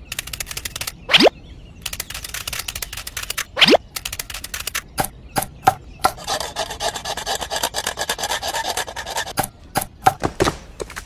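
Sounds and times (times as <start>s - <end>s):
blade scraping wood: 5.7s - 11.0s.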